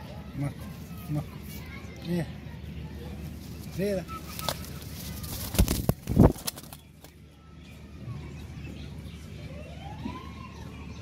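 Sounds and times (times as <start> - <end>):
bird wings flapping: 3.6 - 7.2.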